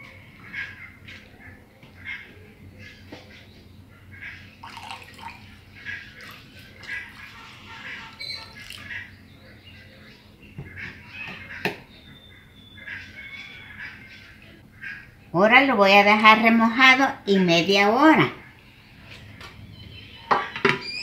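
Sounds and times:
birds calling: 0.0s - 16.7s, 17.3s - 21.0s
liquid trickling into water: 4.6s - 9.0s.

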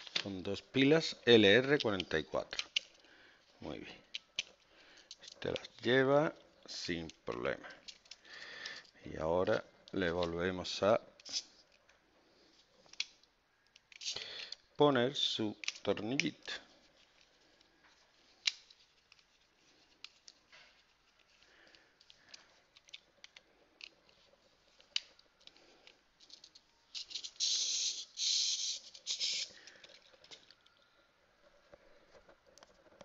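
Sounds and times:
screwdriver clicking and scraping: 12.9s - 14.6s, 24.8s - 30.7s.

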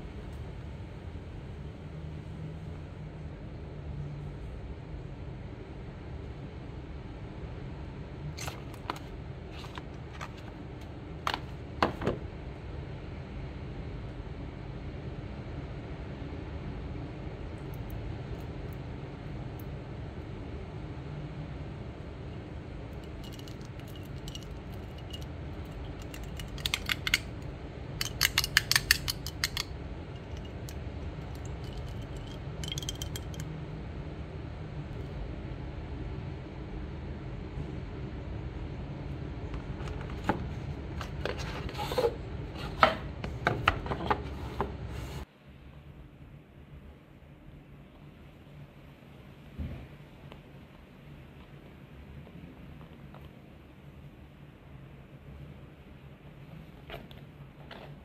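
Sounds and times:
steady low hum: 0.0s - 58.0s
fingernails clicking on bottle: 28.0s - 30.7s.

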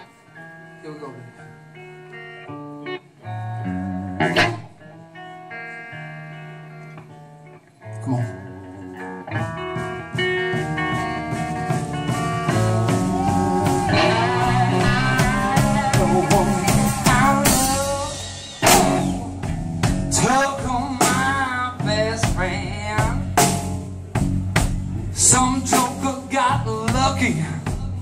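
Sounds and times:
electric guitar lead: 0.0s - 28.0s
drums and cymbals: 9.3s - 28.0s.

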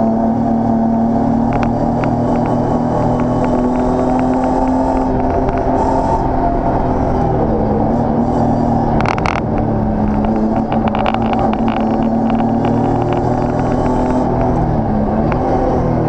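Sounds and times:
race car engine running hard: 0.0s - 16.0s
sharp clattering knocks: 9.0s - 14.6s.

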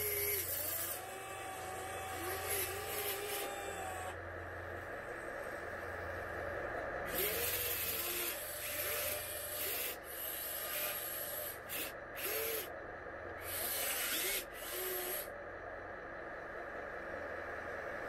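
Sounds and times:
electric motors whirring in bursts: 0.0s - 4.4s, 7.1s - 12.8s, 13.4s - 15.3s.

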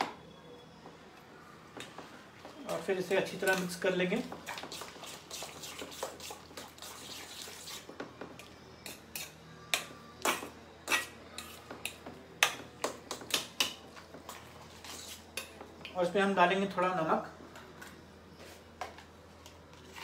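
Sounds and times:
spoon clinking and scraping bowl: 8.8s - 12.6s.

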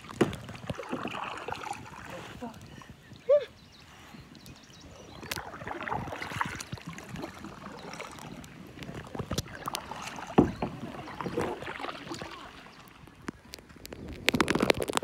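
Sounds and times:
paddle splashing in water: 0.0s - 2.7s, 4.9s - 15.0s
paddle knock: 8.8s - 12.8s.

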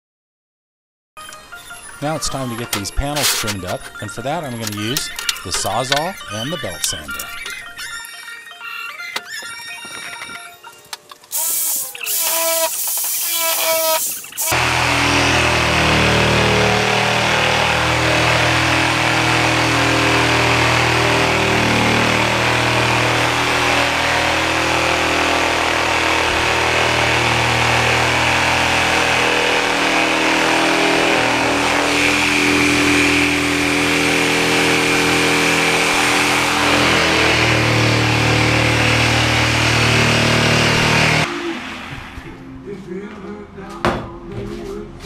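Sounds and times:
reciprocating saw cutting fiberglass: 2.6s - 7.6s, 11.3s - 42.2s.

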